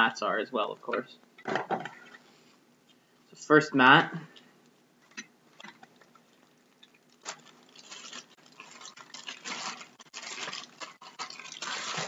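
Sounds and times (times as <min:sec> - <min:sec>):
packaging rustling and crinkling: 0:06.4 - 0:12.0.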